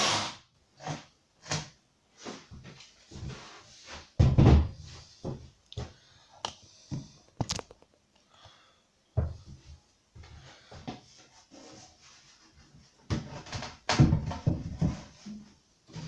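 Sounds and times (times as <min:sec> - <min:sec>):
thuds and knocks: 0:04.2 - 0:04.8, 0:13.9 - 0:15.1.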